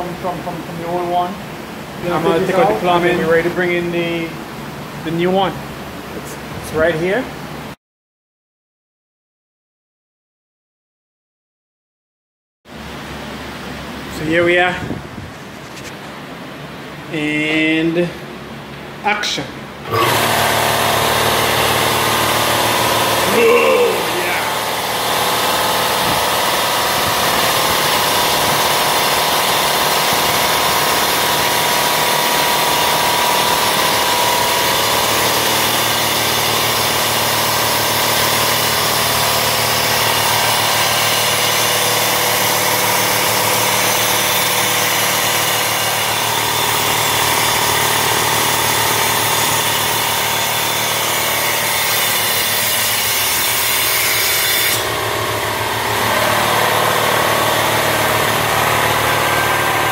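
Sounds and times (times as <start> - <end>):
air compressor running: 19.8 - 59.9.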